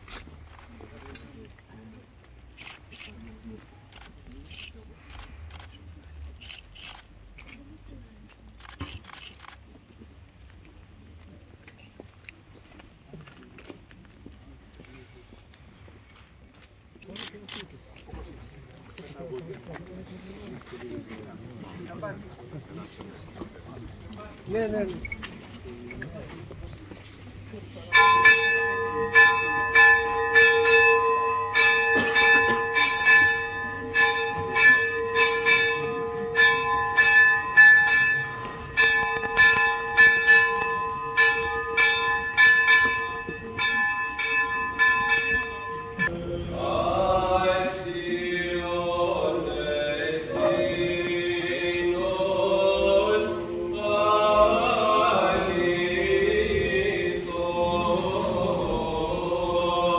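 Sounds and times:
church bells pealing: 27.8s - 46.6s
choir chanting: 46.0s - 59.9s.

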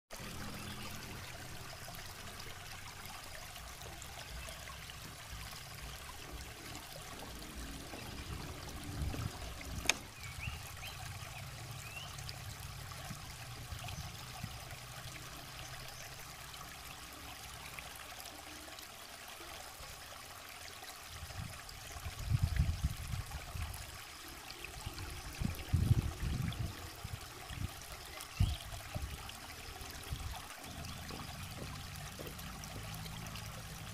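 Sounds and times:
stream trickling over rocks: 0.1s - 33.9s
bumps and rumbles on microphone: 6.3s - 10.1s, 30.0s - 32.9s.

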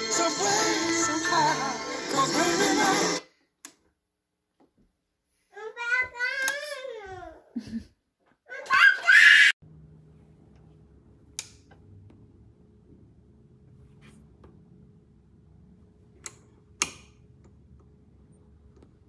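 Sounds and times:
record player hum and rumble: 9.6s - 19.0s.

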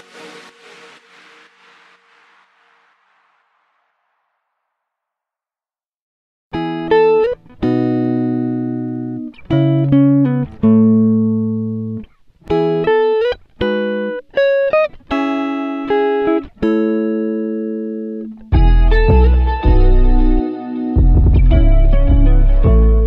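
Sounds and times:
plucked string melody: 6.6s - 23.0s.

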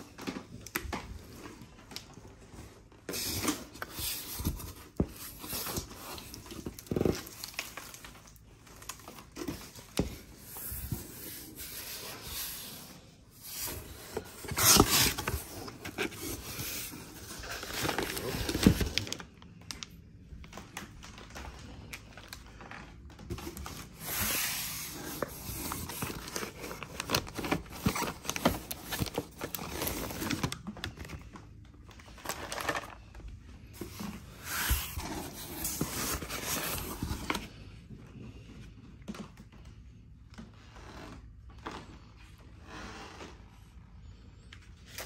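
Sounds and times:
plastic bags crinkling: 0.0s - 10.4s, 13.3s - 37.4s.

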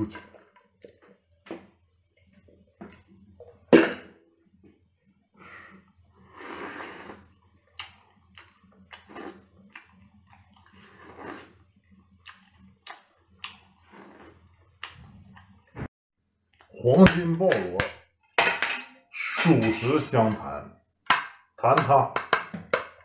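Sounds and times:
wet chewing: 7.1s - 15.8s.

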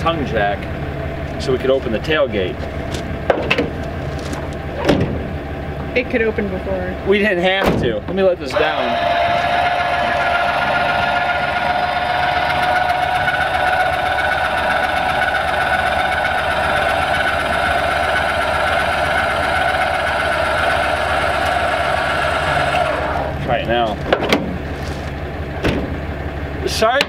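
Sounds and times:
electric jack motor whine: 8.5s - 23.4s.

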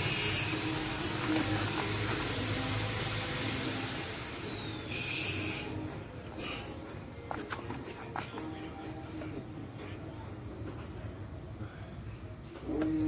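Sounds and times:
machine whirring: 0.0s - 6.8s.

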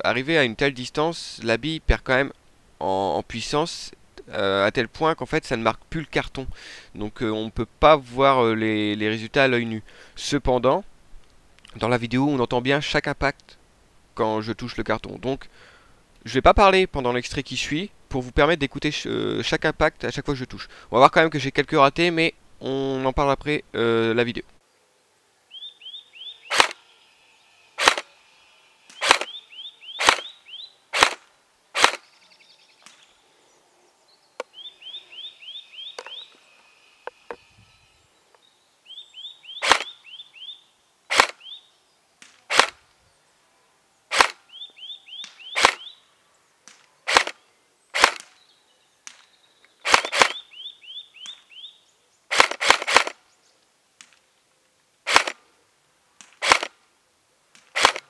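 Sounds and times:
airsoft rifle shots: 26.5s - 26.8s, 27.8s - 28.1s, 28.9s - 29.4s, 30.0s - 30.3s, 30.9s - 32.0s, 39.6s - 39.9s, 41.1s - 41.4s, 42.5s - 42.8s, 44.1s - 44.4s, 45.2s - 45.9s, 47.1s - 47.4s, 48.0s - 48.3s, 49.8s - 50.4s, 52.3s - 53.2s, 55.1s - 55.4s, 56.4s - 56.7s, 57.7s - 58.0s.

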